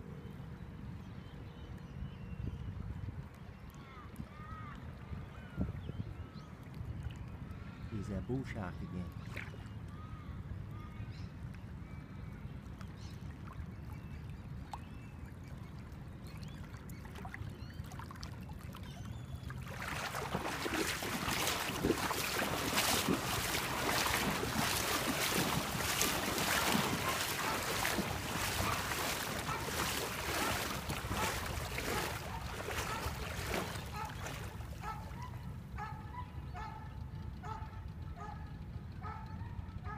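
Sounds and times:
wind rumbling on microphone: 2.3 - 7.9, 19.6 - 36.0
water lapping: 8.5 - 9.7, 13.2 - 36.0.

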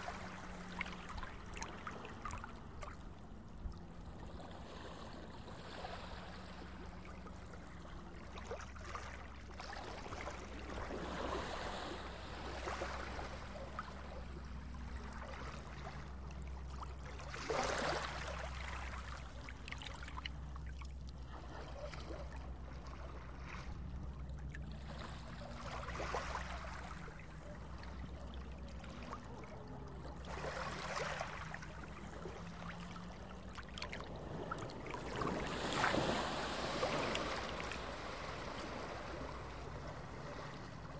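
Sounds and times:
boat engine low rumble: 0.0 - 40.9
water rushing and splashing: 30.2 - 40.9.

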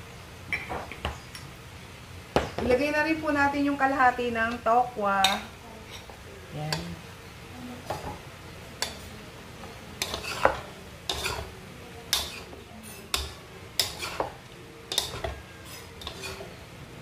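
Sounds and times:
utensils scraping a metal wok: 5.2 - 6.8, 10.0 - 16.6.

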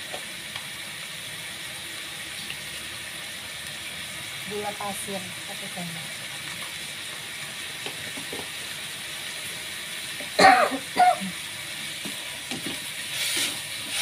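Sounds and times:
stir-frying sizzle: 0.0 - 14.0
person coughing: 10.4 - 11.4.

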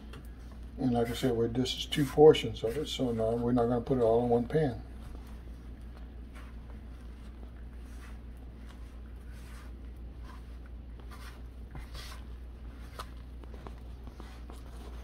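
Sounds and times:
utensil scraping batter in bowl: 5.1 - 15.0.

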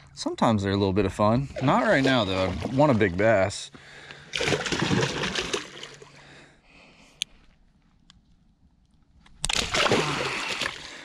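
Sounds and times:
fish splashing at water surface: 4.3 - 6.1, 9.4 - 11.0.

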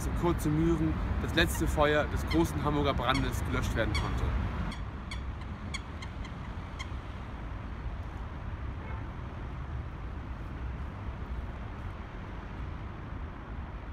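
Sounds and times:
distant city traffic rumble: 0.0 - 13.9.

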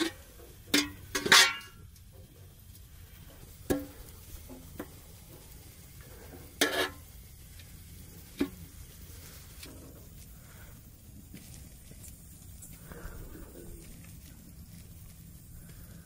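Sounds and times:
metal spoon clinking and scraping pan: 0.0 - 1.8, 6.5 - 7.0.

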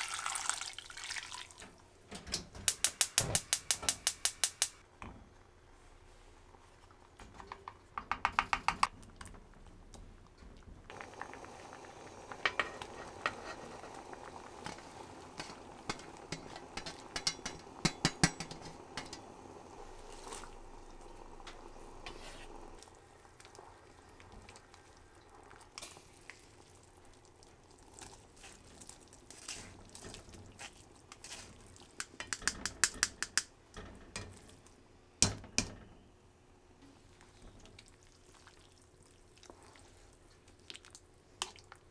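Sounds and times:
soup simmering: 0.0 - 1.8, 4.8 - 34.8, 37.0 - 41.9
wooden spoon knocking on pot: 7.5 - 8.9, 15.9 - 19.2, 32.0 - 33.5.

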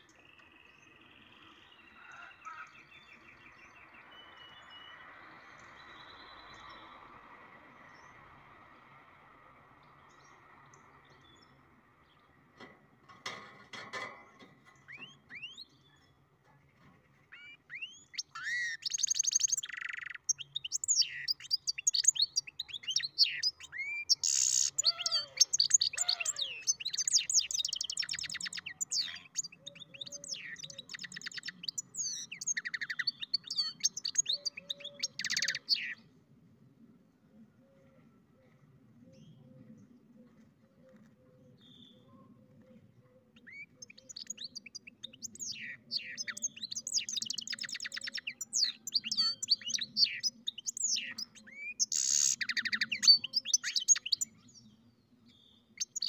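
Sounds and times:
bird singing twittering trills: 0.0 - 9.0, 14.0 - 16.3, 17.3 - 36.1, 41.5 - 56.0.

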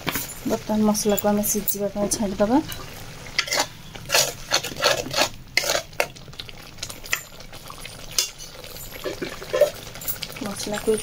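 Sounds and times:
faint frying sizzle: 0.0 - 11.0
spoon scraping metal pan: 2.7 - 6.0.

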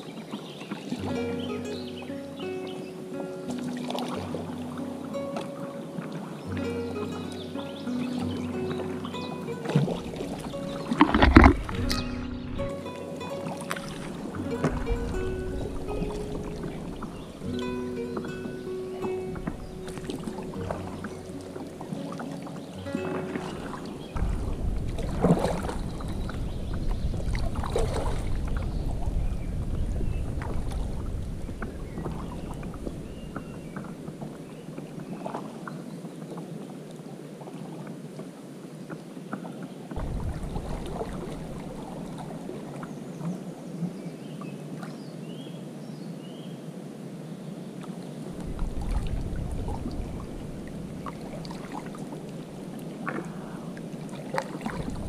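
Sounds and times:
paddle splashing in water: 0.0 - 45.4, 47.8 - 55.0
wind rumble on microphone: 8.4 - 22.1, 22.7 - 36.6, 39.4 - 44.1, 48.2 - 55.0.

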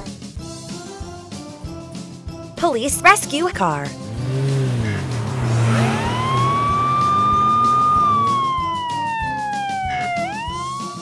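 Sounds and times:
police siren wailing: 4.4 - 11.0.

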